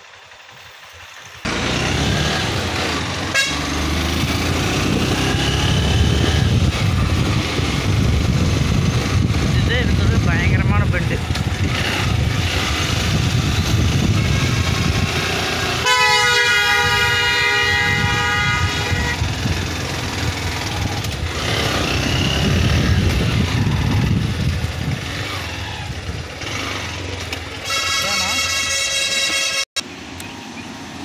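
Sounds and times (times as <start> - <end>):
motorcycle engine running: 0.0 - 29.6
wind and road noise: 0.0 - 31.0
steady horn tone: 2.8 - 6.8, 13.1 - 19.6, 27.6 - 29.7.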